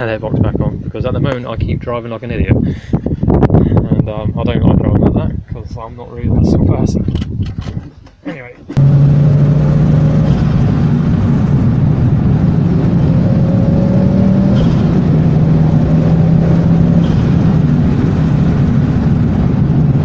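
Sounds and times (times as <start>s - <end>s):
loud engine intake noise: 8.8s - 19.3s
car engine running: 8.8s - 20.0s.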